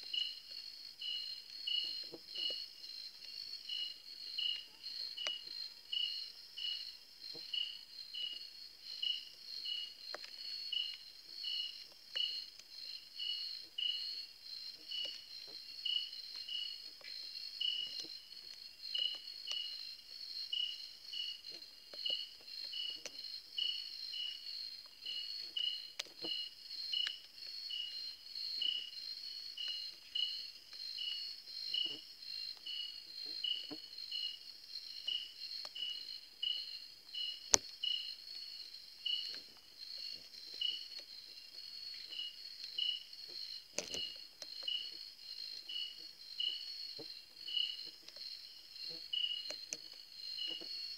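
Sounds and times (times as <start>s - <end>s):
insects trilling: 0.0s - 50.9s
low insect chirp: 0.0s - 50.9s
faint ticks: 1.4s - 5.6s, 9.1s - 14.0s, 14.7s - 19.9s, 20.5s - 28.0s, 29.5s - 34.4s, 39.0s - 50.9s.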